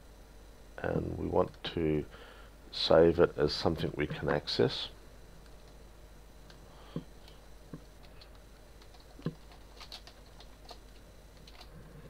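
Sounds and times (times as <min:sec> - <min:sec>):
keyboard typing: 0:07.2 - 0:12.0.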